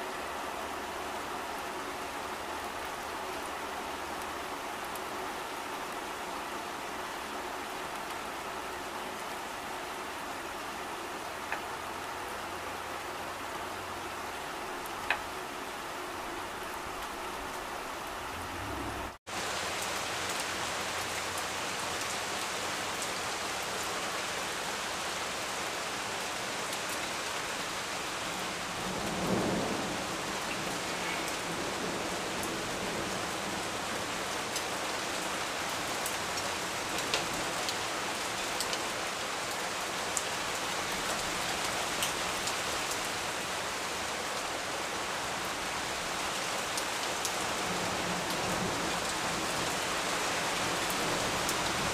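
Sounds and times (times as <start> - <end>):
rain falling on leaves: 0.0 - 51.9
low rumble of thunder: 18.1 - 19.2, 28.8 - 33.6.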